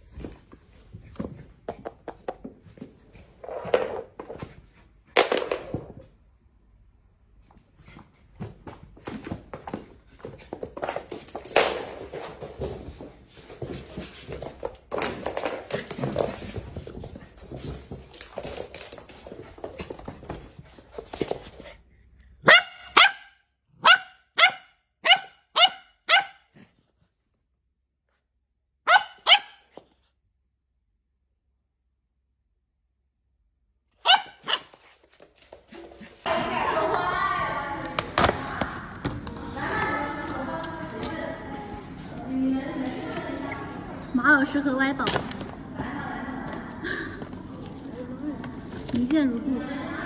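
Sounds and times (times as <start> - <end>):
scuffling on wooden floor: 7.8 - 21.8
puppy barking: 22.4 - 26.5, 28.8 - 29.7, 34.0 - 34.7.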